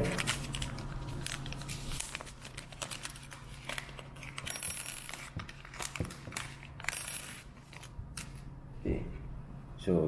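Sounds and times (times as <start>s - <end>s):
plastic packet crinkling: 0.0s - 7.0s.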